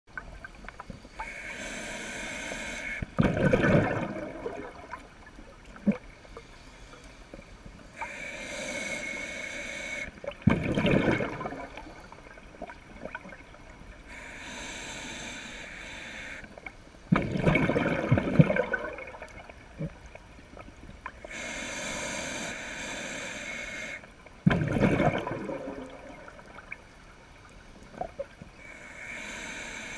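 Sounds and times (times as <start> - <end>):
regulator inhale hiss: 1.0 - 3.1, 6.2 - 10.2, 14.0 - 16.6, 21.2 - 24.2, 28.5 - 29.9
exhaled bubbles gurgling: 2.9 - 6.1, 10.0 - 13.8, 17.1 - 21.4, 24.4 - 26.9.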